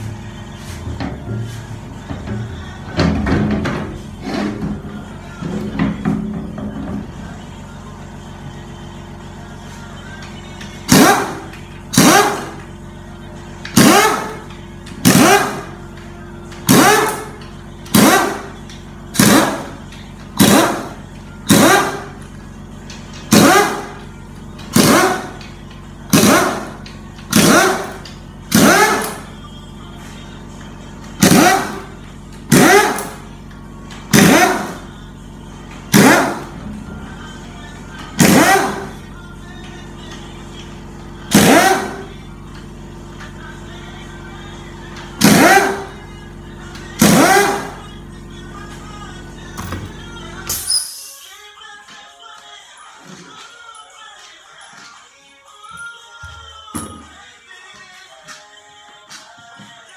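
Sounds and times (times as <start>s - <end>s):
pneumatic impact wrench bursts: 10.9s - 12.6s, 13.8s - 14.4s, 15.0s - 15.7s, 16.6s - 17.3s, 20.4s - 22.1s, 23.3s - 24.0s, 24.7s - 25.4s, 26.1s - 29.2s, 31.2s - 31.9s, 32.5s - 33.2s, 34.1s - 34.8s, 38.2s - 38.9s, 41.3s - 42.1s, 45.2s - 45.9s, 47.0s - 47.8s, 50.5s - 51.2s.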